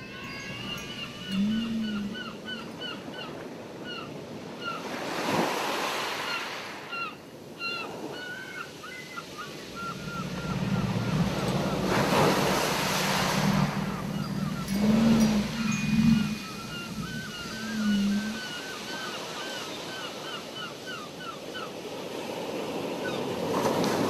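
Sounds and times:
gulls calling: 0:00.0 - 0:05.0, 0:06.2 - 0:21.7
ocean surf washing in: 0:09.3 - 0:19.8
low drone: 0:09.7 - 0:18.4.

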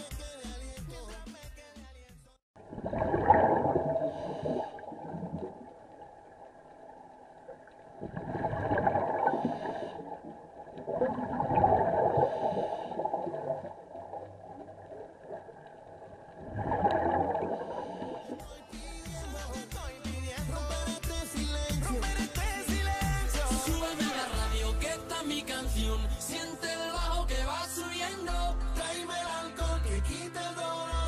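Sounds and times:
diver exhaling bubbles: 0:02.7 - 0:05.7, 0:08.0 - 0:15.6, 0:16.4 - 0:19.2
breathing through a regulator: 0:04.0 - 0:05.2, 0:09.2 - 0:10.3, 0:12.0 - 0:13.7, 0:17.4 - 0:19.8.

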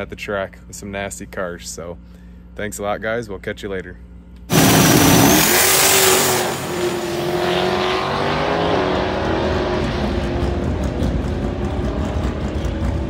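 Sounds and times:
car engine at full throttle: 0:04.5 - 0:13.0.

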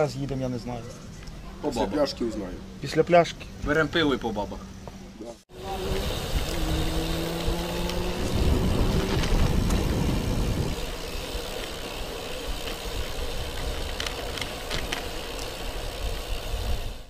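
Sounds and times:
vehicle passing: 0:05.5 - 0:13.6
rushing road noise: 0:05.5 - 0:17.0.

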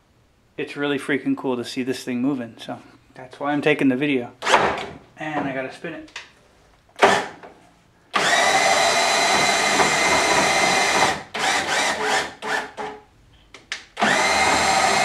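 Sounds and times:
cordless drill spinning lead screw: 0:08.2 - 0:12.7, 0:14.0 - 0:15.0.

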